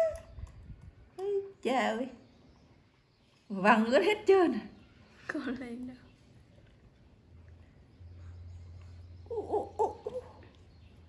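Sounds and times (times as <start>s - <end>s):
hooting coos: 9.2s - 10.6s.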